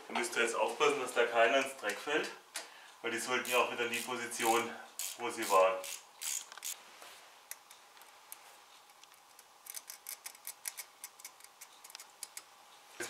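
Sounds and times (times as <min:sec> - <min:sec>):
metal part clicking and rattling: 0:09.0 - 0:12.4.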